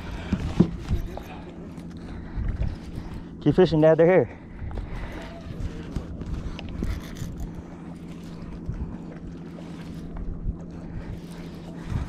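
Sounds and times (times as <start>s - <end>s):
steady low hum: 0.0s - 12.0s
wind buffeting microphone: 4.4s - 12.0s
fishing reel cranking: 6.5s - 8.5s.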